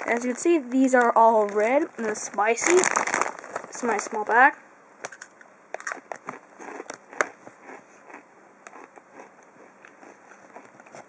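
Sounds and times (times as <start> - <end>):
chips crunching while chewed: 5.1 - 11.0.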